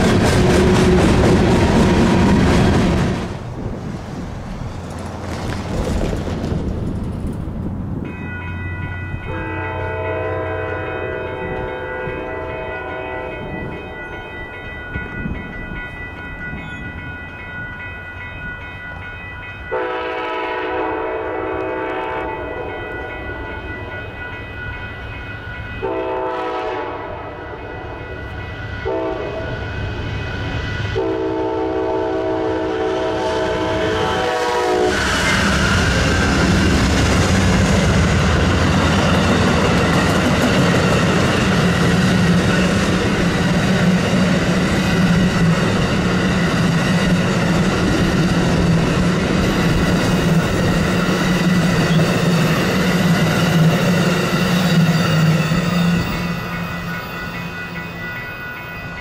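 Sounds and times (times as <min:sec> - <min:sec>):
locomotive engine passing: 0:00.0 - 0:13.6, 0:28.2 - 0:59.0
train wheels on rails: 0:00.0 - 0:59.0
locomotive air horn blasts: 0:09.3 - 0:13.4, 0:19.7 - 0:22.8, 0:25.8 - 0:28.0, 0:28.8 - 0:29.4, 0:31.0 - 0:35.1.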